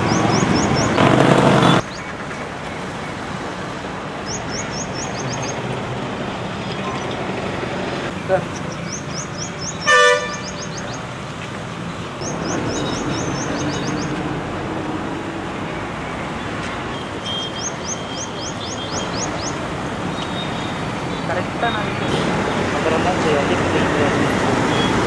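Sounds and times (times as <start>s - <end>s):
street traffic: 0.0s - 25.0s
vehicle horn toot: 9.9s - 10.6s.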